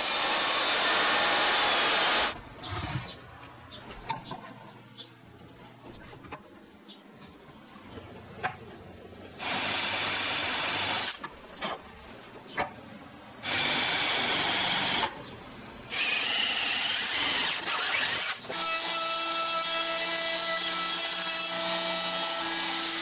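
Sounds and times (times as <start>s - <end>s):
power drill boring into wood: 0.0s - 2.4s, 9.4s - 11.2s, 13.4s - 15.1s, 15.9s - 19.7s.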